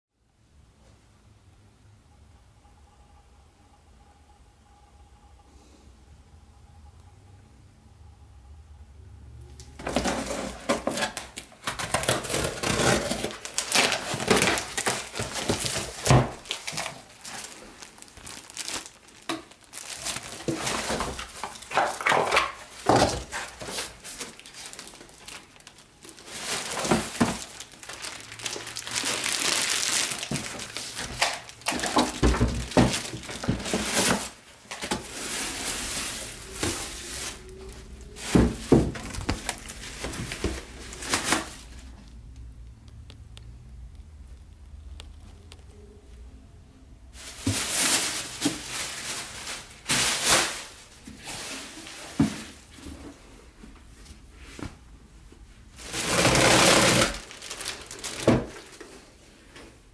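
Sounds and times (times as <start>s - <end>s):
plastic packaging crinkling: 9.8s - 42.4s, 47.2s - 52.7s, 55.6s - 59.1s.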